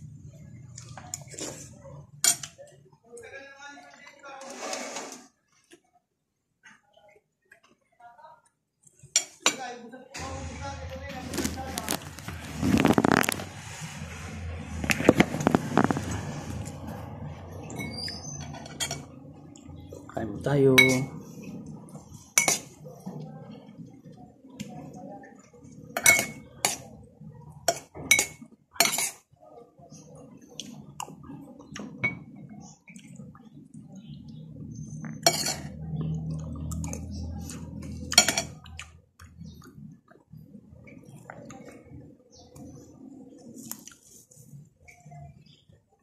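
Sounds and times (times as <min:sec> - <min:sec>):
cutlery clinking on plate: 0:17.8 - 0:19.1, 0:26.0 - 0:26.9, 0:27.7 - 0:29.2, 0:35.2 - 0:35.7, 0:38.1 - 0:38.6.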